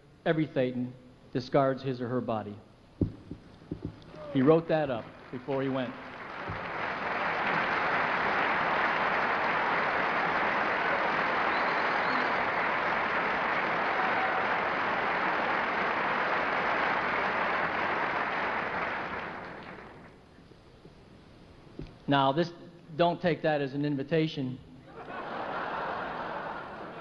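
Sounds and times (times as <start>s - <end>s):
large audience applauding: 4.1s - 20.2s, 25.2s - 27.0s.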